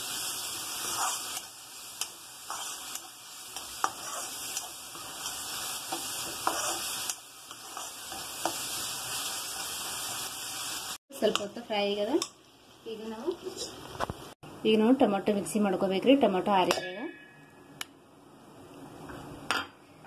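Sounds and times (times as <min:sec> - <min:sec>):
vegetables sizzling in hot oil: 0:00.0 - 0:14.4
metal spatula scraping pan: 0:00.8 - 0:10.0.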